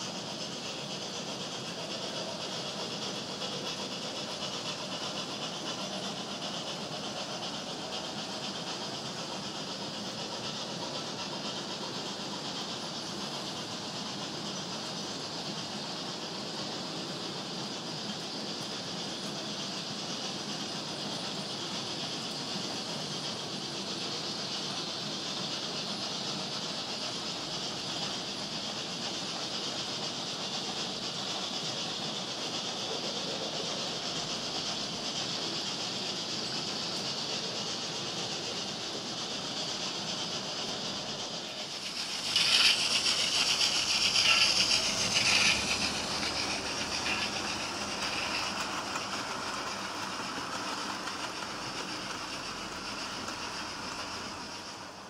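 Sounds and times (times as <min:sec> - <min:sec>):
hissing burst with clicks: 0:00.0 - 0:55.0
model train whirring and rumbling: 0:00.0 - 0:55.0.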